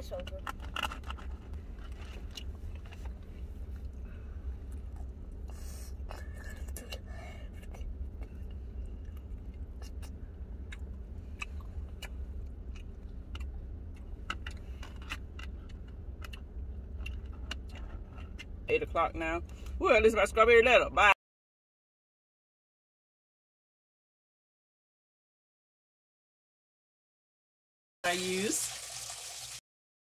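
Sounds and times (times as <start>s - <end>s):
car cabin low hum: 0.0s - 21.1s
chewing: 7.6s - 18.6s.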